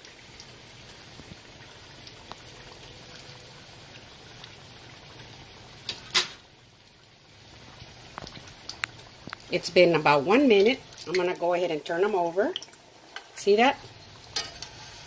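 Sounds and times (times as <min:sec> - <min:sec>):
oil sizzling and crackling: 0:00.0 - 0:15.0.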